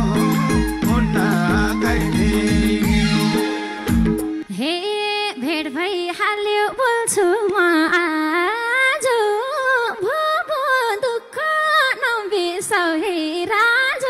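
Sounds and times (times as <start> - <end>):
woman singing unaccompanied: 4.5 - 14.0.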